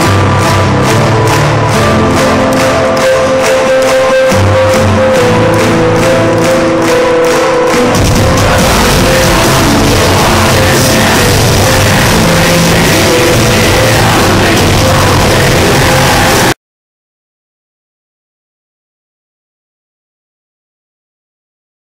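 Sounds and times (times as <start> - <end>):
live heavy metal band: 0.0 - 16.6.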